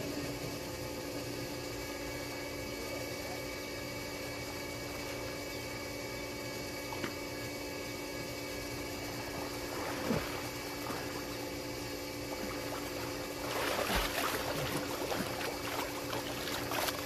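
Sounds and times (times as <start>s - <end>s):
faint steady hum: 0.0s - 17.0s
water splashing from swimmer: 12.4s - 17.0s.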